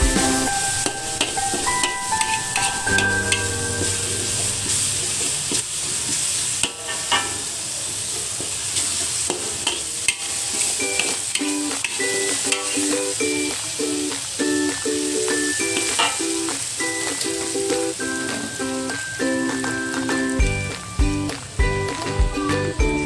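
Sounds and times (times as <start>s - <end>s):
background music: 0.0s - 4.8s, 10.8s - 23.0s
paste sizzling in oil: 0.0s - 21.6s
metal spatula scraping pan: 0.6s - 5.3s, 6.6s - 7.4s, 9.3s - 13.0s, 15.7s - 16.3s.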